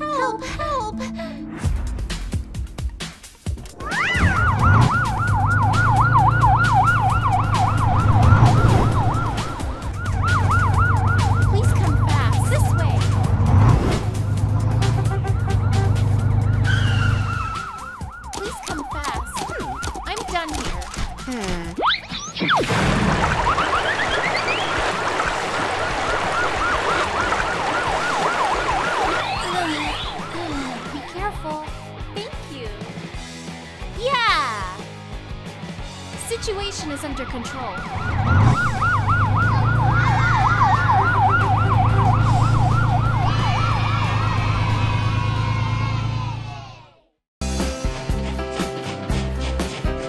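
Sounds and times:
fire truck siren yelping: 3.7 - 13.5, 14.1 - 22.4, 23.3 - 31.2, 36.4 - 46.7.

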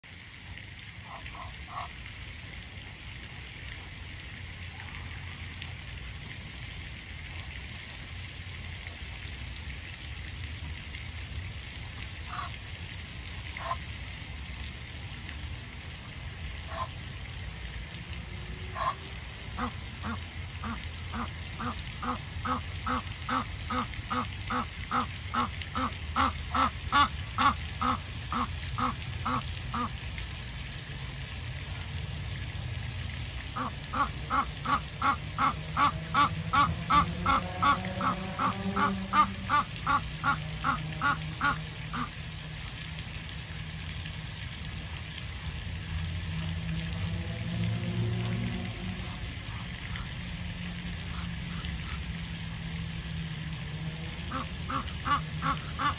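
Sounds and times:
waterfowl calling: 1.0 - 1.9, 12.3 - 12.5, 13.6 - 13.8, 16.7 - 16.9, 18.7 - 19.0, 19.6 - 29.9, 33.6 - 42.1, 54.3 - 55.9.

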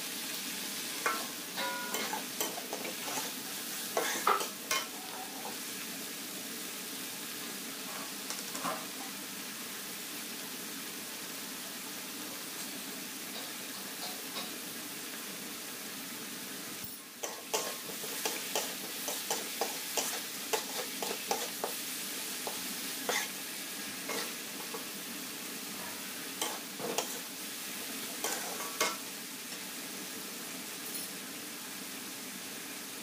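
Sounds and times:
chillies sizzling in a wok: 0.0 - 33.0
metal spatula scraping a pan: 1.0 - 5.6, 17.2 - 21.8, 22.4 - 23.4, 24.1 - 24.8, 25.8 - 27.3, 28.2 - 29.0.

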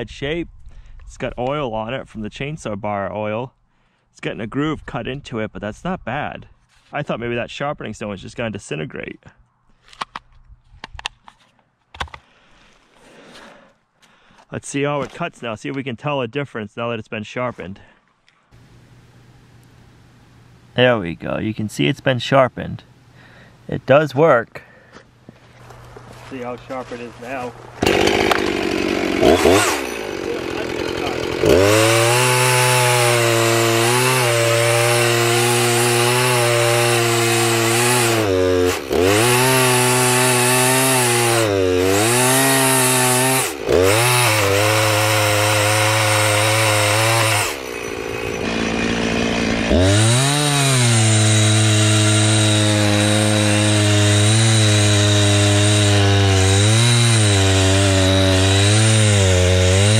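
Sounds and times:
chainsaw cutting through log: 26.4 - 59.9.

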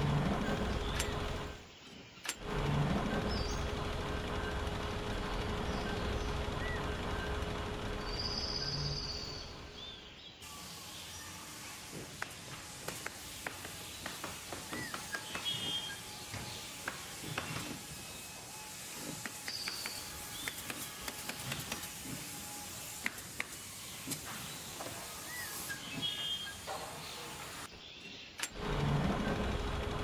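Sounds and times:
small clicks: 0.4 - 1.5, 19.0 - 22.1, 28.4 - 28.6
steady outdoor hiss: 7.8 - 28.8.

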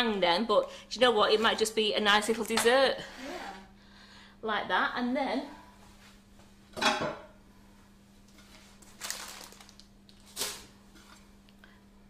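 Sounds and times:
cake board scraping: 3.0 - 3.7.

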